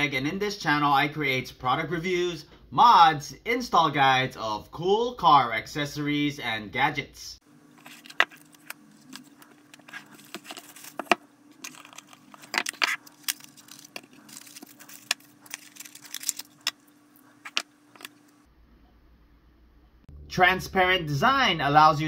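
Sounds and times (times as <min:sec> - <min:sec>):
packaging rustling: 0:07.7 - 0:18.5.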